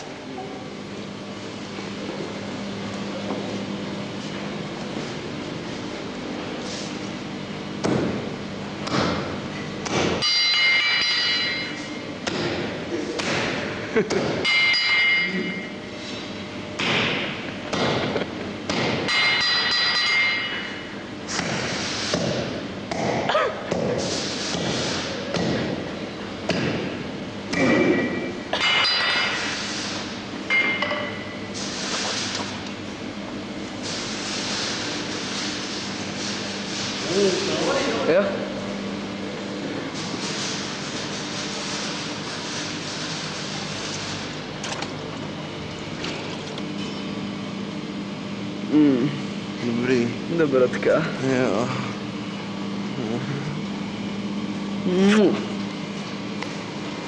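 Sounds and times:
steady low hum: 0:00.0 - 0:57.0
hammer striking anvil: 0:09.9 - 0:11.7, 0:14.4 - 0:15.3
metallic ringing: 0:10.2 - 0:11.8, 0:14.5 - 0:15.7.

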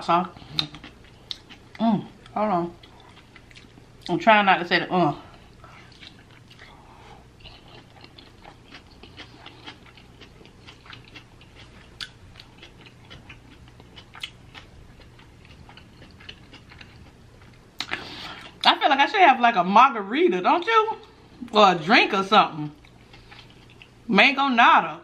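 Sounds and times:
crunchy chewing: 0:00.4 - 0:04.1, 0:05.4 - 0:18.6, 0:22.8 - 0:24.0.

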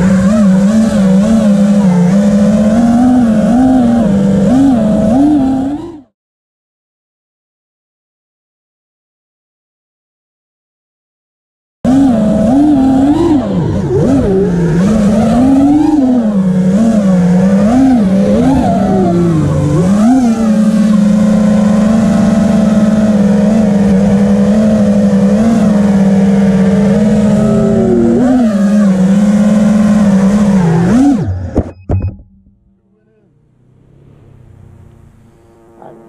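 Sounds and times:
quadcopter motors whining: 0:00.0 - 0:06.0, 0:11.9 - 0:31.7, 0:34.0 - 0:36.0.

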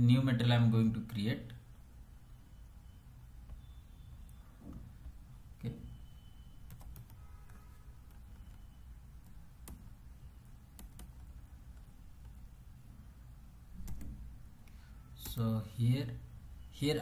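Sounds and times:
faint low hum: 0:00.0 - 0:17.0
keyboard clicks: 0:06.7 - 0:07.2, 0:08.0 - 0:10.0, 0:10.7 - 0:12.5, 0:13.8 - 0:14.2.

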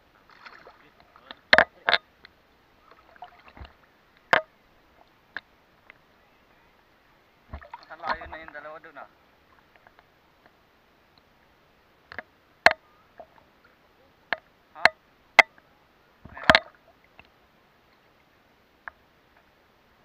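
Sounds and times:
water splashes and knocks: 0:00.2 - 0:02.0, 0:02.8 - 0:06.0, 0:07.5 - 0:08.7, 0:16.2 - 0:17.4
longer water splash: 0:00.3 - 0:00.9, 0:02.8 - 0:03.8, 0:07.5 - 0:08.2.

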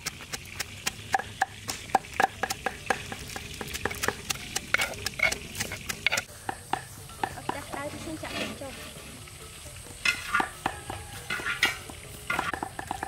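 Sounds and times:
metal spoon scraping stone mortar: 0:02.0 - 0:06.3, 0:07.9 - 0:09.2, 0:10.0 - 0:13.0.

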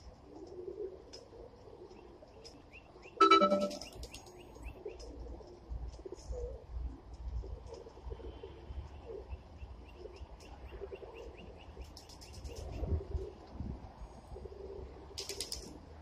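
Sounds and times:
pigeons cooing: 0:00.1 - 0:02.3.

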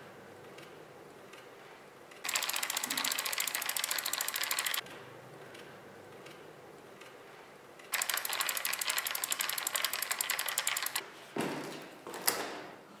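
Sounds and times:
freewheel pawls ticking: 0:02.2 - 0:04.8, 0:07.9 - 0:11.0.

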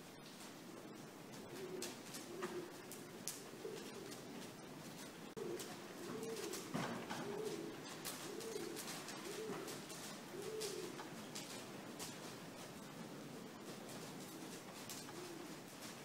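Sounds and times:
pigeon cooing: 0:00.7 - 0:11.8, 0:12.7 - 0:16.0
faint ticks: 0:01.8 - 0:06.6, 0:14.7 - 0:15.2.

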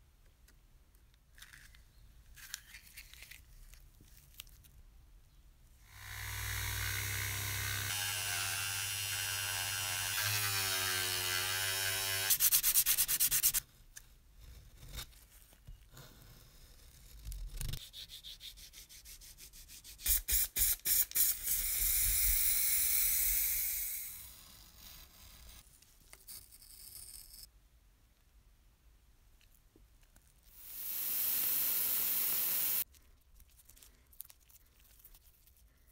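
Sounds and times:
rotary tool whining: 0:05.9 - 0:12.3, 0:21.5 - 0:25.6
metal scraping on sandpaper: 0:12.3 - 0:13.6
spray paint hissing: 0:20.0 - 0:21.9, 0:30.6 - 0:32.8.

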